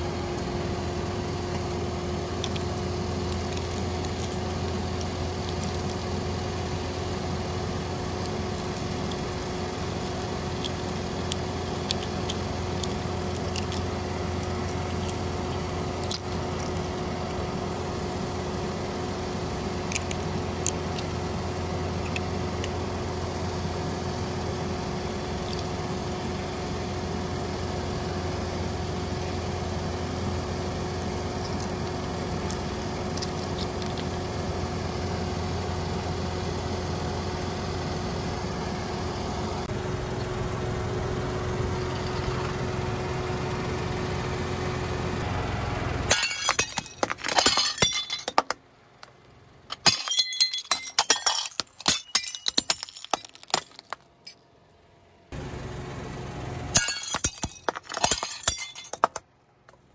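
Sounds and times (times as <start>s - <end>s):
car engine idling: 0.0s - 47.4s
tyre crushing brittle plastic: 49.7s - 54.3s.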